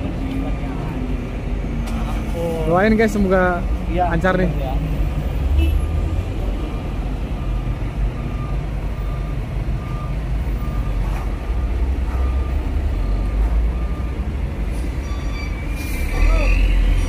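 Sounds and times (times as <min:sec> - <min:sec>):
heavy truck engines rumbling: 0:00.0 - 0:17.0
reversing alarm beeps: 0:07.1 - 0:17.0.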